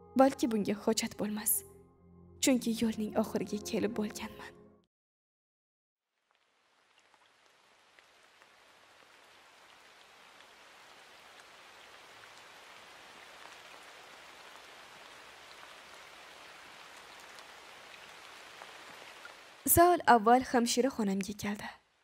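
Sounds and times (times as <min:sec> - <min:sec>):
faint rain patter: 0:06.0 - 0:22.0.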